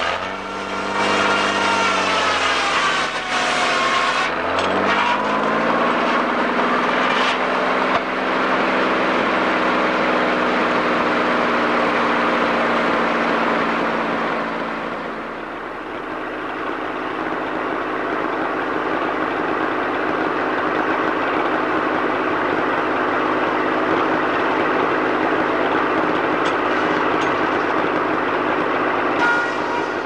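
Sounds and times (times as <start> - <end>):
sawmill machinery running: 0.0 - 30.0
brief tone: 29.1 - 30.0.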